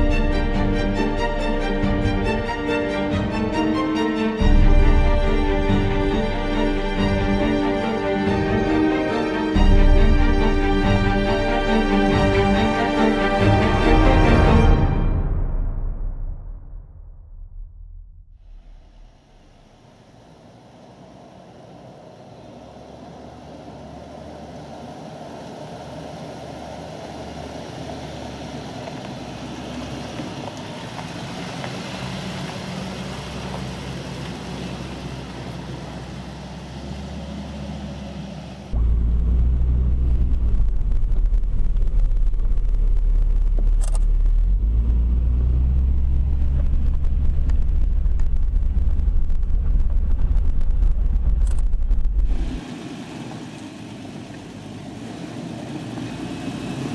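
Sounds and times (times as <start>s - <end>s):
engine and road noise inside cabin: 18.7s - 56.9s
off-road vehicles driving on dirt: 18.9s - 56.9s.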